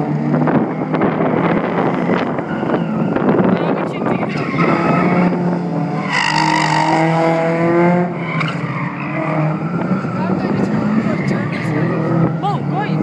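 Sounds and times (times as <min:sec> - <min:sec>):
race car engine revving: 0:00.0 - 0:13.0.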